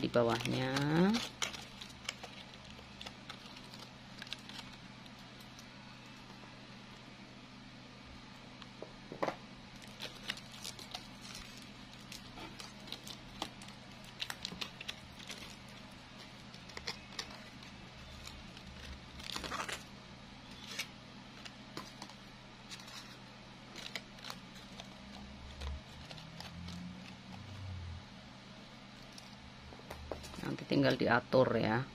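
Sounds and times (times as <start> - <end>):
plastic flower crinkling and rustling: 0.0 - 6.5, 9.7 - 19.9, 20.5 - 27.7.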